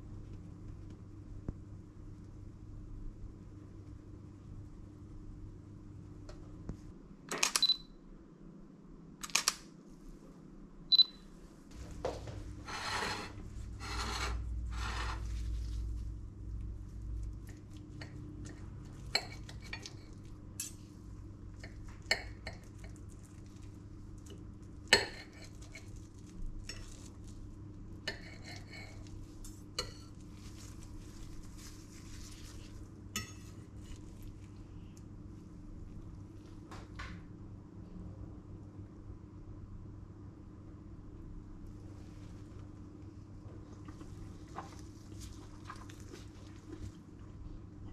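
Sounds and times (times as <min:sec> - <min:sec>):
knife and fork scraping plate: 0:12.6 - 0:15.3, 0:28.1 - 0:29.1.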